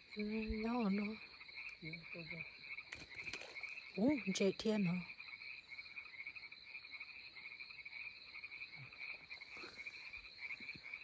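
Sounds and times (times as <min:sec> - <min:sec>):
frogs calling in pulsing trill: 0:00.0 - 0:11.0.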